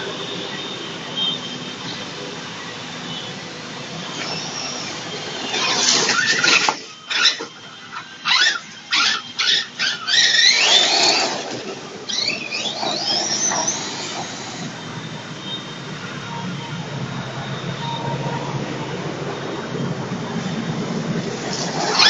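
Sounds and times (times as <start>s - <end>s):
radio-controlled truck motor whining: 0.0s - 22.0s.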